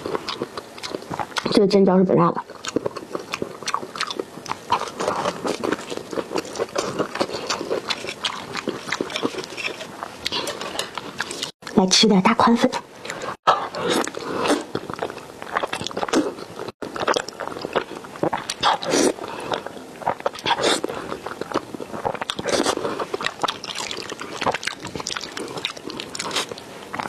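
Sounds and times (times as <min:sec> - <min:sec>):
mouth smacks and chewing: 0:02.4 - 0:11.8, 0:13.1 - 0:27.0
slurping noodles: 0:13.1 - 0:16.5.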